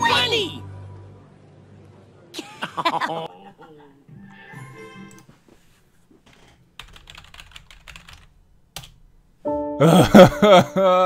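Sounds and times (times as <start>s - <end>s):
typing on keyboard: 6.3s - 9.0s.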